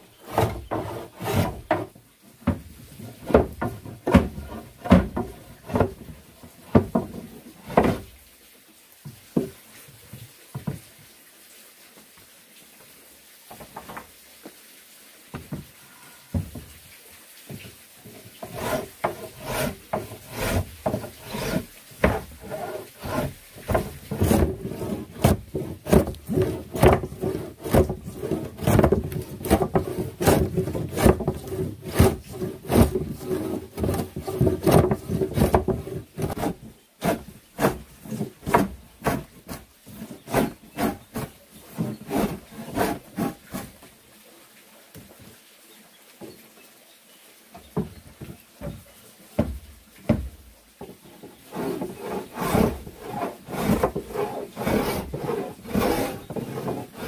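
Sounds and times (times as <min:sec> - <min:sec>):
hand saw cutting wood: 0:00.0 - 0:08.1, 0:18.0 - 0:43.9, 0:50.8 - 0:57.0.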